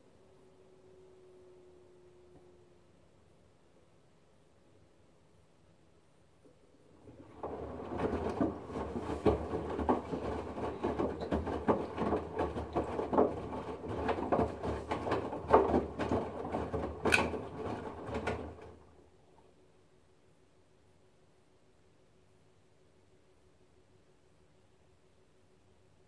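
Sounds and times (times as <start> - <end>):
water sloshing in washing machine: 6.9 - 19.4.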